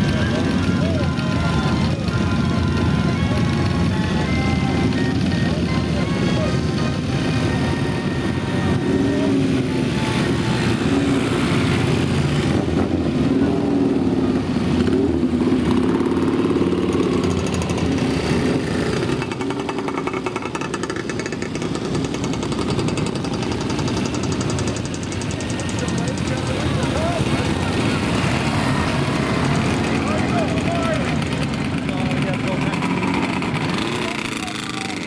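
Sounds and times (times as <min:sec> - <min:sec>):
motorcycle engines passing: 0:00.0 - 0:35.0.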